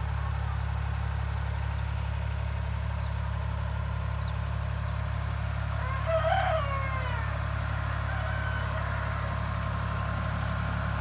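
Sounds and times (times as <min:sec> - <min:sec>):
low engine hum: 0:00.0 - 0:11.0
rooster crowing: 0:05.7 - 0:09.6
faint chicken call: 0:05.8 - 0:09.3.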